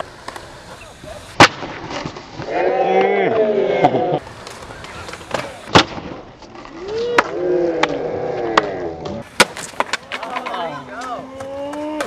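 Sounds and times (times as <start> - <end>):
skateboard striking concrete: 0.0 - 3.4, 4.2 - 12.0
skateboard wheels clacking: 0.0 - 3.4, 4.2 - 12.0
people calling out: 10.6 - 12.0.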